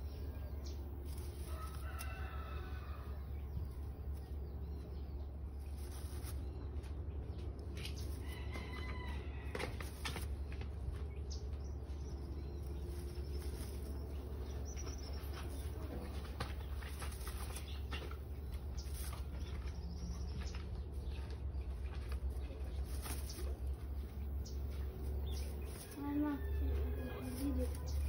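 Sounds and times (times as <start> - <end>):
steady low hum: 0.0 - 28.0
hen rustling dry hay: 0.4 - 4.6, 5.4 - 7.1, 12.1 - 19.8, 21.7 - 28.0.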